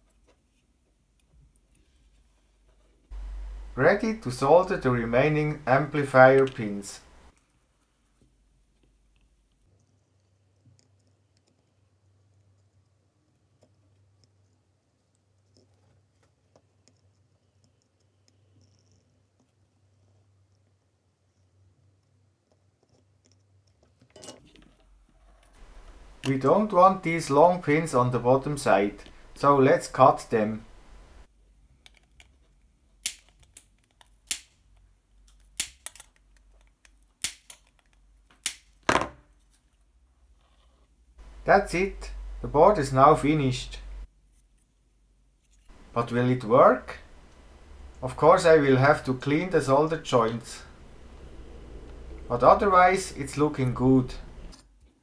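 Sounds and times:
low steady hum: 0.8 - 15.6, 24.7 - 31.8, 41.0 - 55.0
cutters snipping pins: 35.2 - 38.8.

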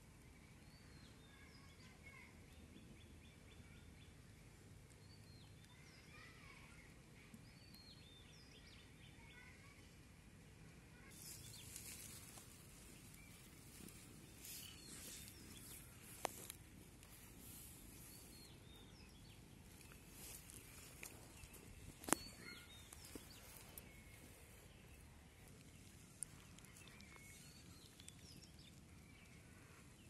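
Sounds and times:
small birds chirping: 0.2 - 10.0, 10.9 - 30.0
rustling and handling noise: 11.1 - 30.0.

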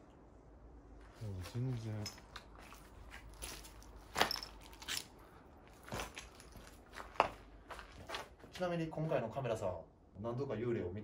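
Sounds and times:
footsteps crunching over debris: 1.1 - 8.7.

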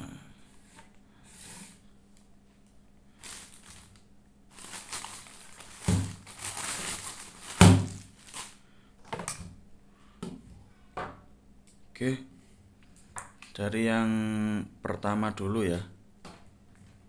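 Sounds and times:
plastic bag rustling: 3.1 - 8.6
plastic unit thudding: 5.7 - 6.5, 7.4 - 8.1.

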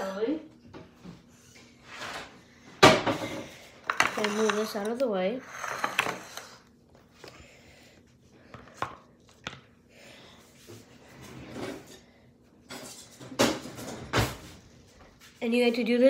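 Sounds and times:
kitchen items clattering on counter: 1.9 - 6.4, 12.6 - 14.6.

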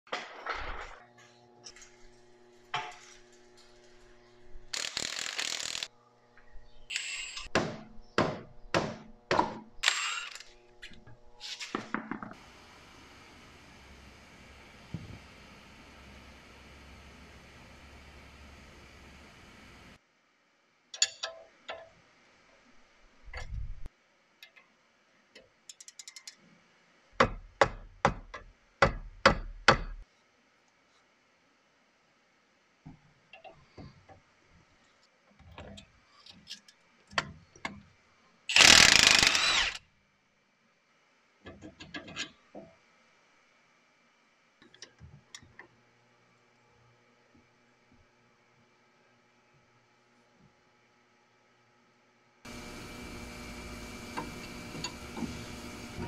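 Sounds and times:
ratchet clicking: 4.8 - 5.9, 38.5 - 39.8.

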